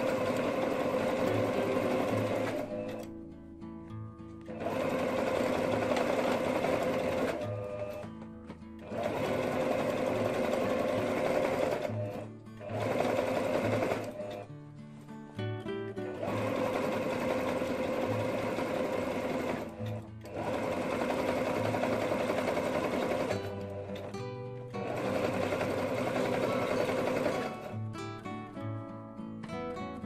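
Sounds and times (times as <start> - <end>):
electric sewing machine running: 0.0 - 3.1, 4.5 - 8.0, 8.8 - 14.4, 16.1 - 24.1, 24.8 - 27.8.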